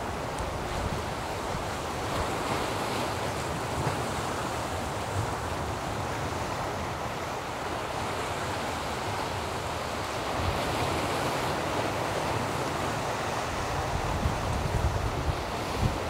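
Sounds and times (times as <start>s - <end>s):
sea surf breaking on rocks: 0.0s - 16.0s
wind gusting on microphone: 10.3s - 16.0s.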